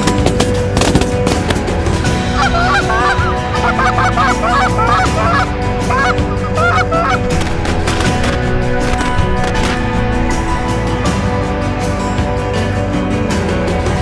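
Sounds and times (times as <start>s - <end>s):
sharp cracks: 0.0s - 11.0s
geese honking: 2.2s - 10.9s.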